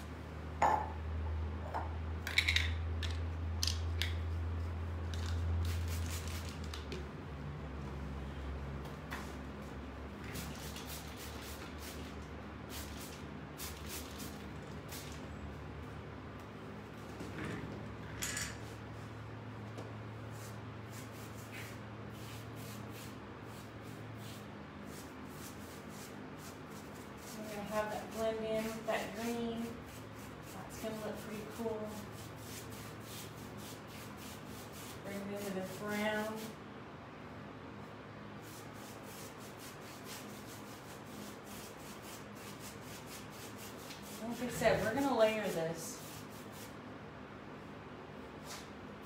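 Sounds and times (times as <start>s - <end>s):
low steady hum: 0.0s - 49.0s
paintbrush swishing strokes: 20.1s - 36.6s, 37.8s - 46.8s.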